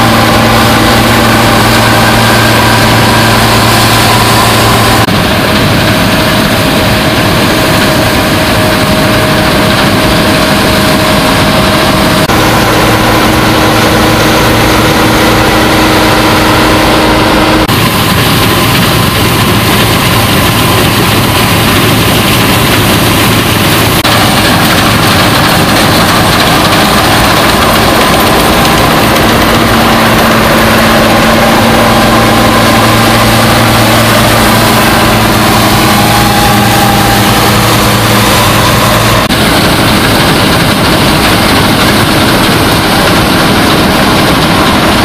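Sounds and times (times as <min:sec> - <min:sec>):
combine harvester drone: 0:00.0 - 0:45.0.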